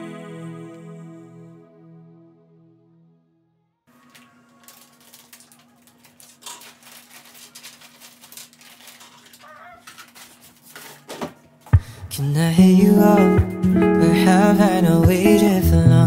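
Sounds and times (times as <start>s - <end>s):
sweet wrappers crinkling: 3.9s - 11.7s.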